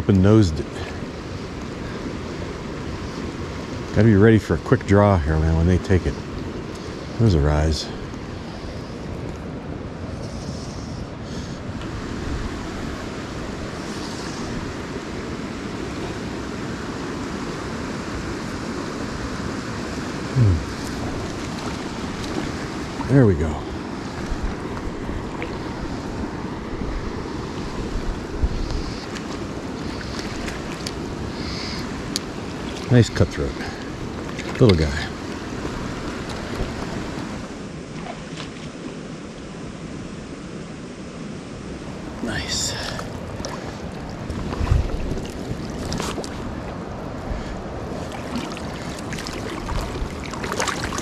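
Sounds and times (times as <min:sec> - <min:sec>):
lake water lapping: 0:00.3 - 0:39.3, 0:41.9 - 0:51.0
water splashes: 0:18.4 - 0:39.5, 0:41.9 - 0:51.0
wind across microphone: 0:20.2 - 0:32.1, 0:42.0 - 0:51.0.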